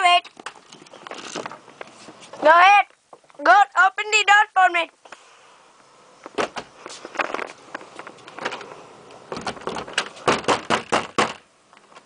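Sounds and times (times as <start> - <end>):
locked door rattling in frame: 9.3 - 11.4.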